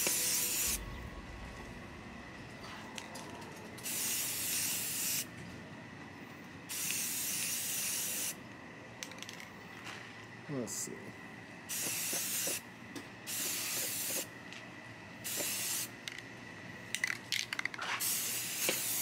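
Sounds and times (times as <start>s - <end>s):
aerosol spray can spraying: 11.7s - 12.6s, 13.3s - 14.3s, 15.3s - 15.9s, 18.0s - 19.0s.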